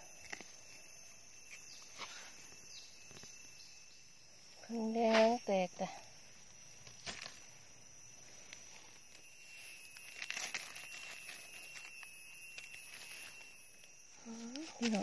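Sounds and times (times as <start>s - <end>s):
faint high whine: 0.0s - 15.0s
dry leaves and twigs rustling: 4.5s - 15.0s.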